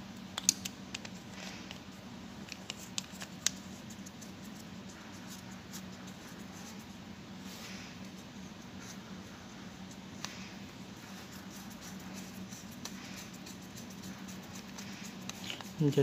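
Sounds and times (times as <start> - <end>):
low steady hum: 0.0 - 16.0
small clicks and taps: 0.3 - 1.2.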